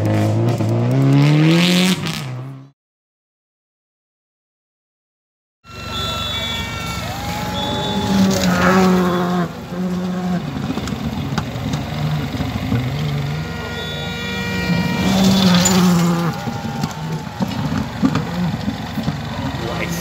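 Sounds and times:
rally car engines revving: 0:00.0 - 0:02.7, 0:05.7 - 0:20.0
car passing by: 0:06.0 - 0:10.7.

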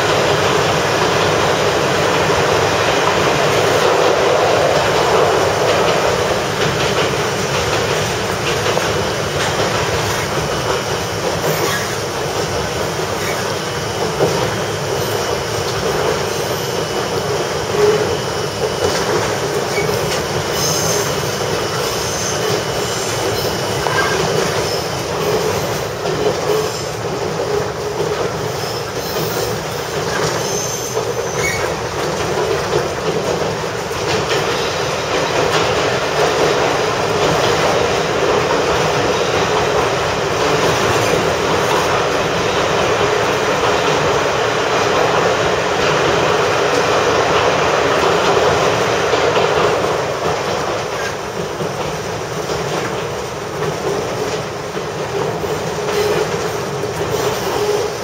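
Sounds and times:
railcar engine and wheels rumbling: 0:00.0 - 0:58.0
high wheel squeals: 0:11.5 - 0:12.0, 0:13.1 - 0:14.0, 0:19.7 - 0:25.6, 0:28.5 - 0:31.8.

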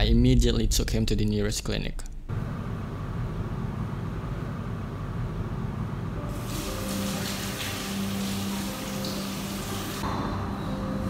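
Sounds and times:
low room hum: 0:00.0 - 0:06.5
hands washing under water: 0:06.3 - 0:10.0
sink tap running: 0:06.3 - 0:10.0.

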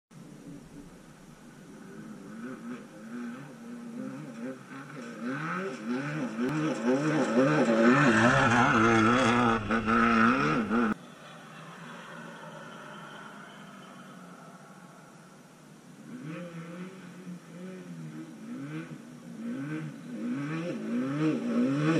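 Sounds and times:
race car engine revving: 0:00.2 - 0:11.0, 0:15.4 - 0:21.9.

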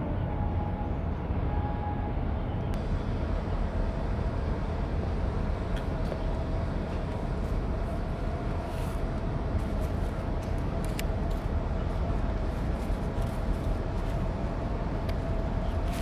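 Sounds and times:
faint steady hum: 0:00.0 - 0:16.0
low outdoor rumble: 0:00.0 - 0:16.0.

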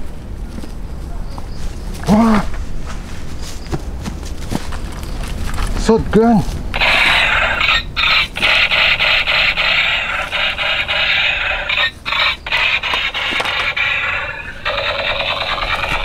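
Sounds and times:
toy gun electronic firing buzz: 0:06.8 - 0:16.0.

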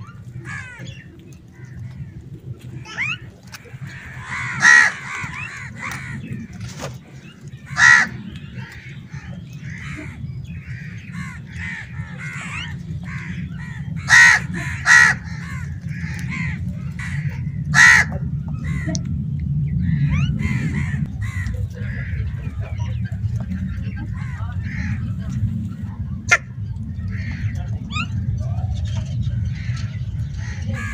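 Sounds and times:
birds chirping: 0:00.0 - 0:30.9
low background hum: 0:00.0 - 0:30.9
crows cawing: 0:00.4 - 0:01.0, 0:03.8 - 0:06.5, 0:07.7 - 0:19.0, 0:19.9 - 0:22.4, 0:30.4 - 0:30.9.

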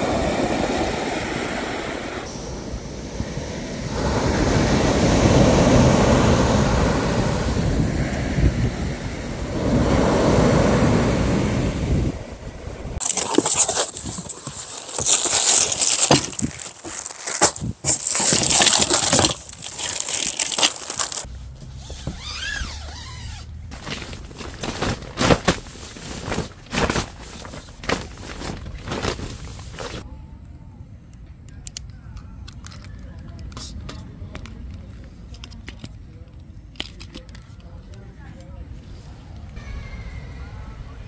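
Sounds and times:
surf breaking on a beach: 0:00.0 - 0:21.3
plastic wrapping and cardboard rustling: 0:13.0 - 0:22.2, 0:22.9 - 0:30.0.

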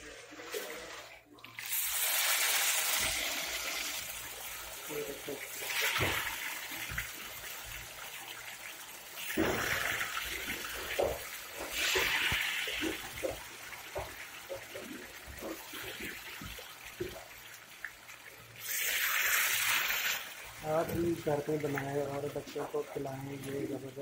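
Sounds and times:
fries sizzling in hot oil: 0:00.0 - 0:24.0
oil crackles and pops: 0:01.5 - 0:08.4, 0:09.1 - 0:17.4.

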